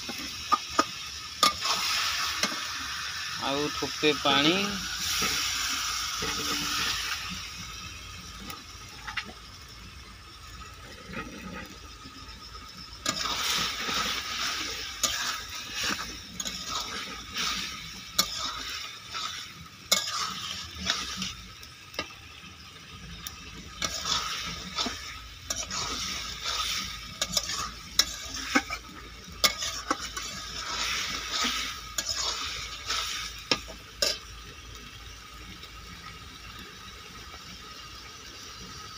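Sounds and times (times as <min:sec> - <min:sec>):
curry sizzling in pan: 0:00.0 - 0:38.9
water splashing into hot pan: 0:00.0 - 0:38.9
spatula scraping pan: 0:06.2 - 0:07.2, 0:13.0 - 0:22.1, 0:23.2 - 0:34.2.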